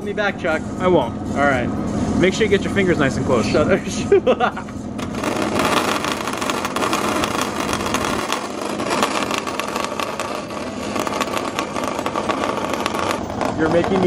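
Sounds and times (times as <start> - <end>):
bandsaw motor hum: 5.0 - 14.0
saw blade cutting plastic: 5.0 - 14.0.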